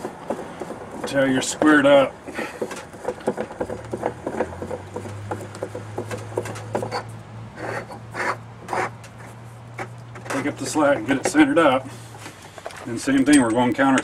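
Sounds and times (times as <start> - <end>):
metal rasps: 0.0 - 14.0
metal tool scraping and clicking: 12.4 - 14.0.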